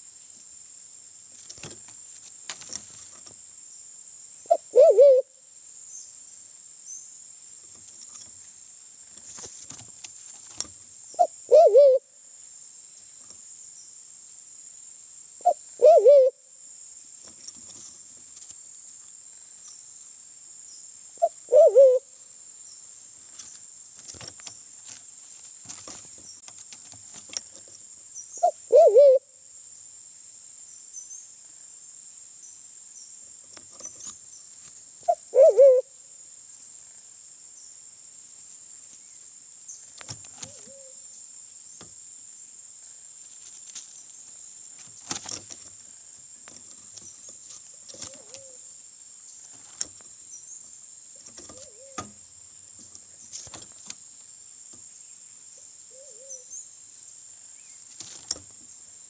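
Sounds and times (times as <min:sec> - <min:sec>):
steady high hiss: 0:00.0 - 0:59.0
pigeon hooting calls: 0:04.5 - 0:05.3, 0:11.2 - 0:12.0, 0:15.4 - 0:16.4, 0:21.2 - 0:22.0, 0:28.4 - 0:29.3, 0:35.0 - 0:35.9.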